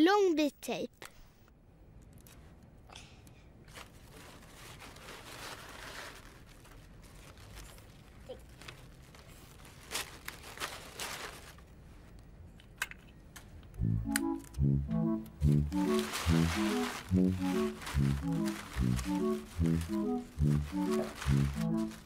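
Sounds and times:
wrapping paper crinkling: 3.7s - 12.0s, 15.4s - 22.0s
paper ripping: 15.4s - 22.0s.

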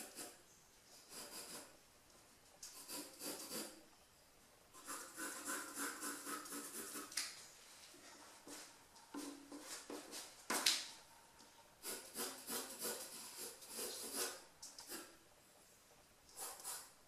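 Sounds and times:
pencil sketching on paper: 0.0s - 0.4s, 1.1s - 1.8s, 2.8s - 3.8s, 4.8s - 7.1s, 11.8s - 15.1s, 16.4s - 17.0s.

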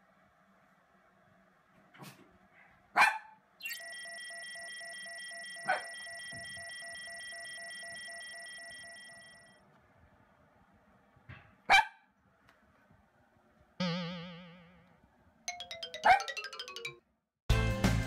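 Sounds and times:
small dog barking: 2.9s - 3.4s, 5.6s - 6.0s, 11.7s - 12.1s.

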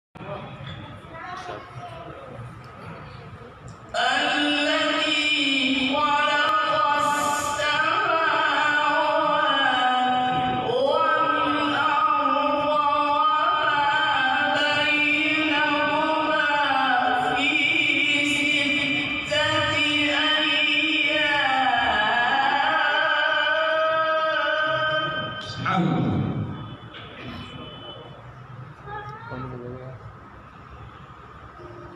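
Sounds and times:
man reciting melodically: 4.0s - 26.5s.

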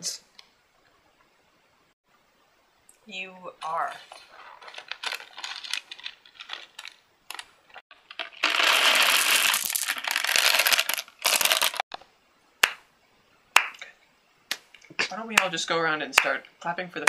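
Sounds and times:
candies rattling into a purse: 4.1s - 11.8s.

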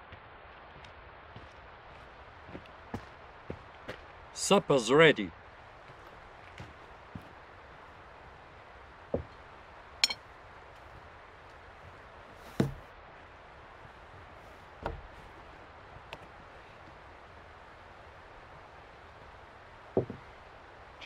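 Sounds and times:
ringing plate clink: 10.0s - 10.2s
knocks on wooden table: 20.0s - 20.2s.

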